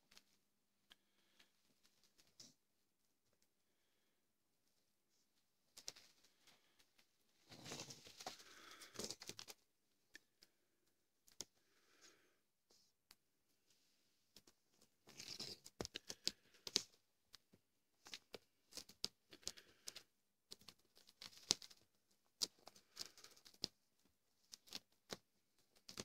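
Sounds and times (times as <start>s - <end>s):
cat crinkling and tearing paper: 18.0s - 23.8s.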